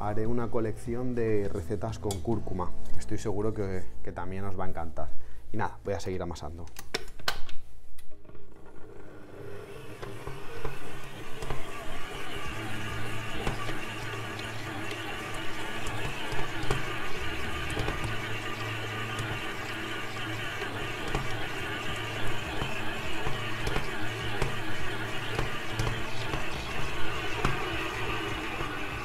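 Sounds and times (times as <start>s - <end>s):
stand mixer motor hum: 8.6s - 29.0s.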